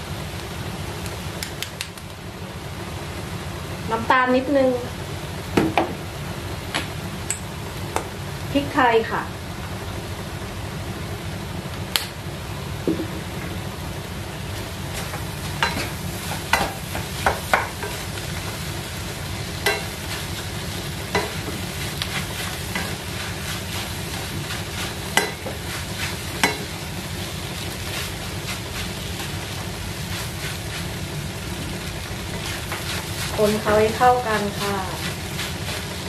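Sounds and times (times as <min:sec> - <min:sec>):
frying sizzle: 0:00.0 - 0:36.0
spatula knocking and scraping pan: 0:15.0 - 0:18.1, 0:19.6 - 0:20.2, 0:21.1 - 0:26.7.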